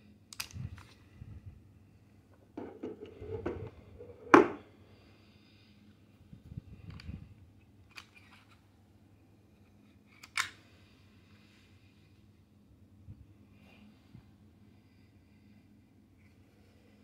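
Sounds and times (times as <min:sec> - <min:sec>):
plastic clicks from pistol handling: 0:00.3 - 0:01.0, 0:07.8 - 0:08.6, 0:10.1 - 0:10.6
scraping and knocking on plastic: 0:02.6 - 0:04.6.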